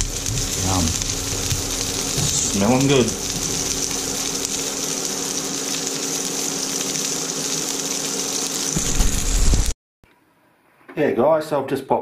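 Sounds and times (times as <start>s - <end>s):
constant low hum: 0.0s - 7.0s
butter sizzling in a frying pan: 0.0s - 9.7s.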